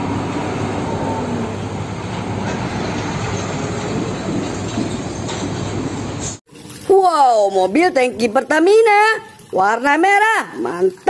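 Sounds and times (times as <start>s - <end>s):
diesel truck engine running: 0.0s - 6.4s
tyre and road noise: 0.0s - 6.4s.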